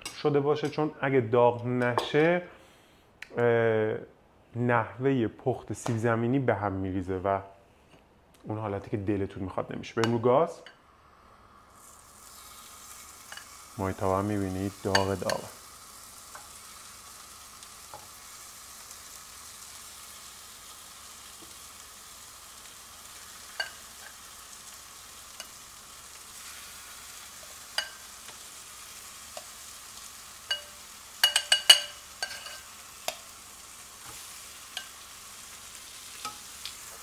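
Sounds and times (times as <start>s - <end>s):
chicken wings sizzling in pan: 10.9s - 37.0s
metal tongs clicking on pan: 23.5s - 24.2s, 27.8s - 28.4s, 29.3s - 29.6s, 30.5s - 33.3s.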